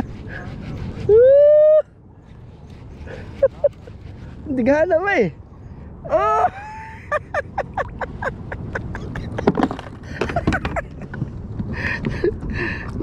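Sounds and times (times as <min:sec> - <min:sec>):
clicks and knocks handling fish: 0:09.2 - 0:11.7.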